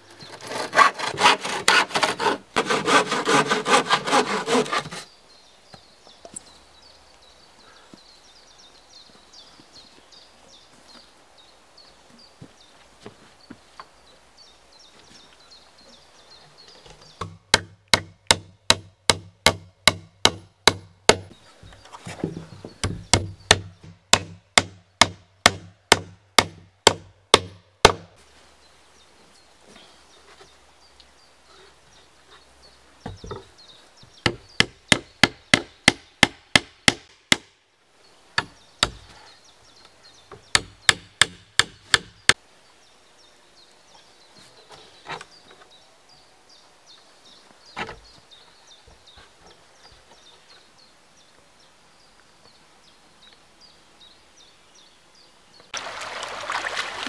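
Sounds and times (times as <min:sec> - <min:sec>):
hammer driving nails into wood: 0:17.2 - 0:21.3, 0:40.6 - 0:42.1.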